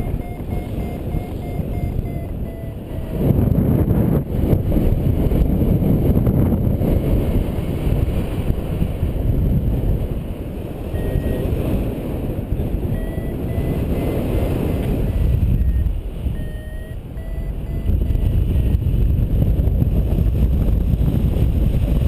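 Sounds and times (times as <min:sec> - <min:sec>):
faint short beeps: 0:00.0 - 0:03.6, 0:10.9 - 0:11.8, 0:12.9 - 0:18.8
wind buffeting microphone: 0:00.0 - 0:22.0.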